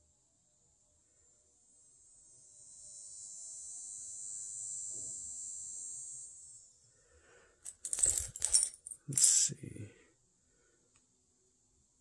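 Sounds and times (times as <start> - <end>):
coins clicking: 7.7 - 9.4.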